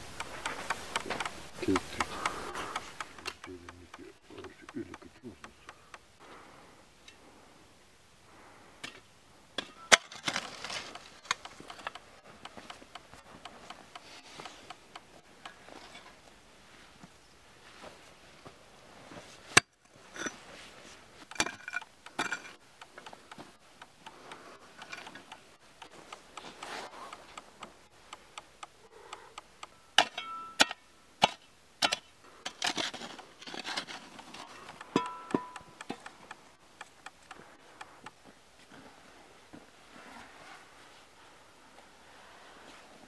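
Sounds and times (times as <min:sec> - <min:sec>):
hoe striking stony soil: 0:00.0 - 0:05.8, 0:09.6 - 0:16.2, 0:21.2 - 0:27.8, 0:29.6 - 0:38.2.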